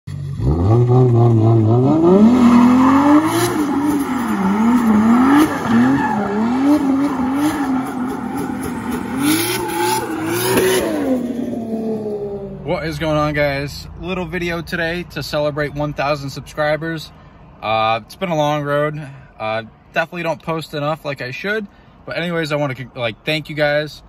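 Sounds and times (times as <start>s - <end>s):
car engine revving hard: 0.1s - 12.5s
tyres squealing: 2.4s - 11.0s.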